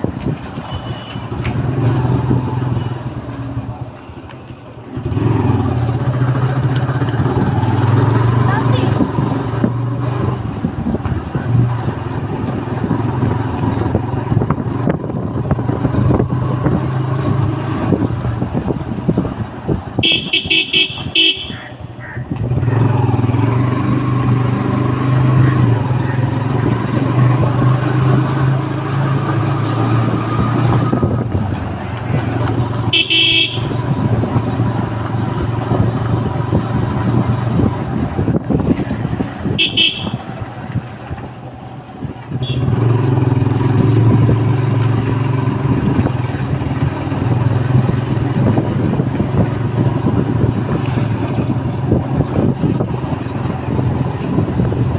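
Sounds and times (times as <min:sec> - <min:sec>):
motorcycle engine running: 0:04.9 - 0:54.9
short horn beeps: 0:20.0 - 0:21.7, 0:32.9 - 0:33.8, 0:39.6 - 0:40.2.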